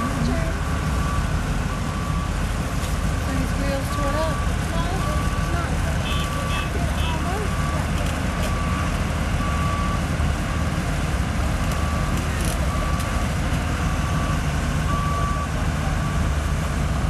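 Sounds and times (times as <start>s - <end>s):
excavator diesel engine rumbling: 0.0s - 17.0s
high-pitched backup alarm beeping: 3.8s - 10.0s.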